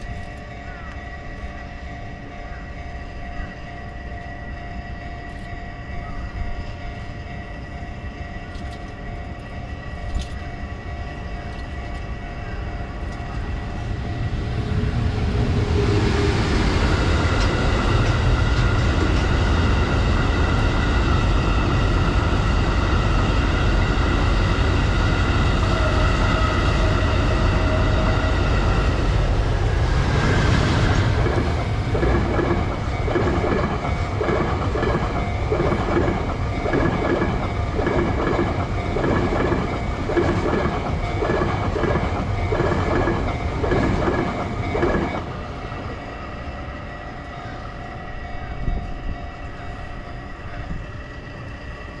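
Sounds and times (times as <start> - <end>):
train rumbling over bridge: 0.0 - 52.0
wheels clickety-clack over rail joints: 8.3 - 45.5.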